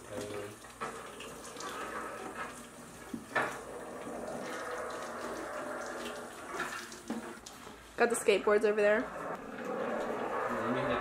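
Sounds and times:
tap water running into sink: 0.0 - 7.8.

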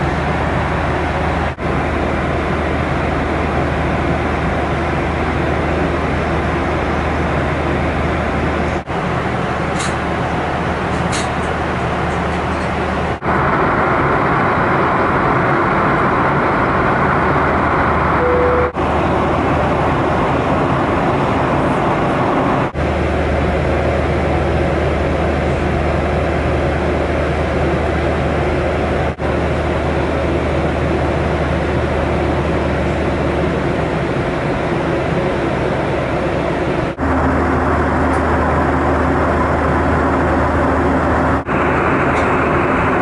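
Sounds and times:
airplane cabin air rush and engine hum: 0.0 - 43.0
short beep: 18.2 - 18.8.

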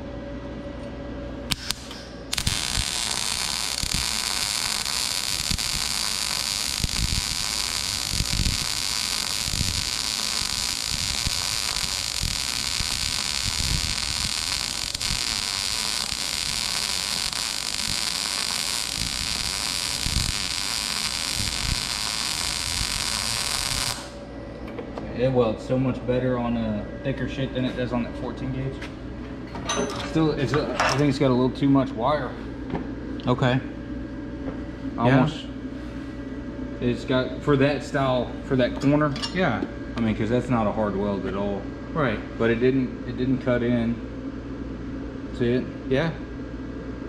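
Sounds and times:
welding arc with small pops: 1.5 - 24.2.

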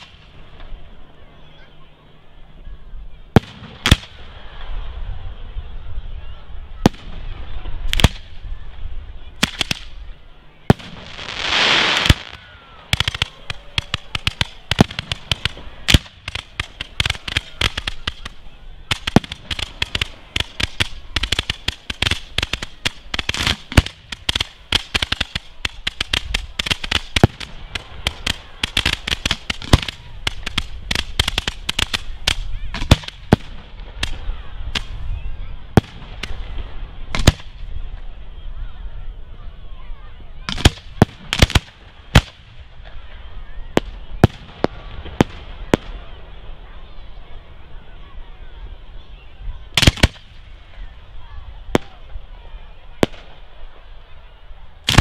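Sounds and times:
fireworks bangs: 0.0 - 0.8, 3.4 - 4.7, 6.8 - 8.4, 9.4 - 10.0, 10.7 - 35.1, 35.7 - 38.1, 40.5 - 43.1, 43.7 - 46.7, 49.8 - 50.8, 51.7 - 53.9
rapid firework cracks and bangs: 3.4 - 4.2, 7.9 - 8.4, 9.4 - 9.9, 10.7 - 35.0, 35.8 - 37.7, 40.5 - 43.0, 43.8 - 46.0, 49.8 - 50.5, 51.7 - 52.0, 53.0 - 53.4
firework rushing hiss: 10.7 - 35.1, 49.8 - 50.8.

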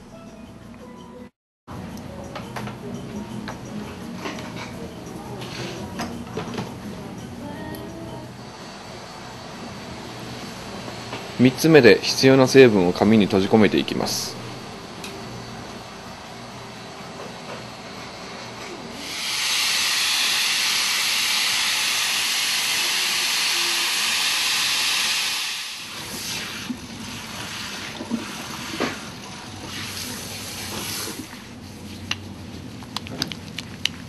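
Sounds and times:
steam hissing from nozzle: 19.0 - 27.9.

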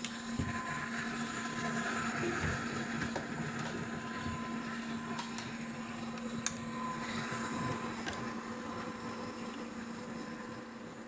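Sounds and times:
faint electronic hum: 0.0 - 11.0
mechanical whir: 0.0 - 11.0.

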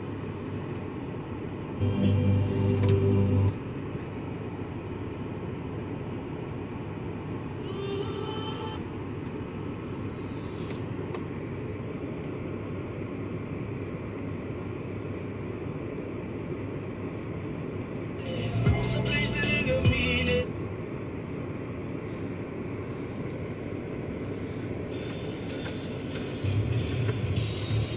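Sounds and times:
car cabin hum: 0.0 - 9.6, 10.8 - 27.9
car stereo music: 1.8 - 3.6, 18.2 - 20.5, 24.9 - 27.9.

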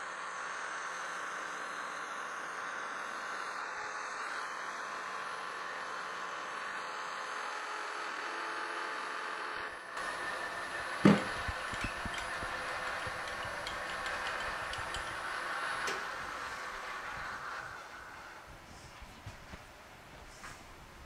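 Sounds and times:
metal lathe machining hum: 0.1 - 19.1
loud knock: 11.0 - 12.4.

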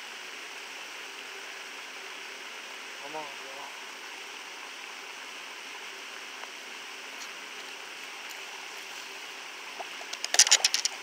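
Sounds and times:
steady background hiss: 0.0 - 11.0.

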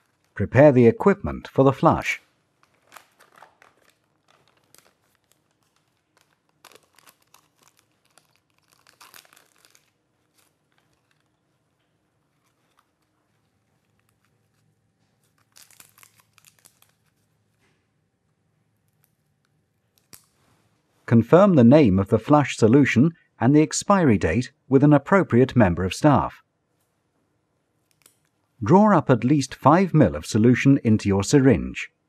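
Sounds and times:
packaging crinkling and tearing: 0.0 - 0.4, 2.2 - 17.6.

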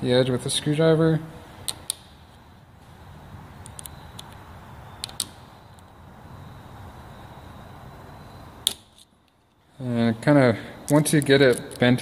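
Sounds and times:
background hum: 0.0 - 12.0.

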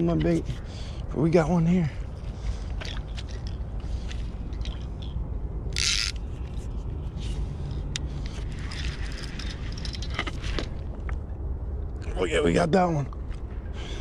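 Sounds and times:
fishing reel clicks and ratcheting: 5.7 - 6.2.

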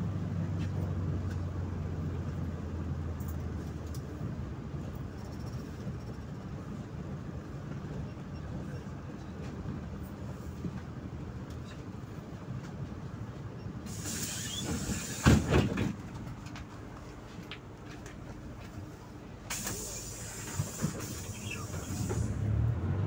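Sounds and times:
bus diesel engine rumble: 0.0 - 23.0
hiss: 13.9 - 15.7, 19.5 - 22.6.

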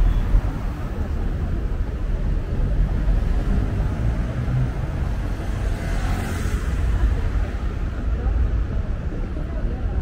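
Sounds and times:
cars passing rumble: 0.0 - 10.0.

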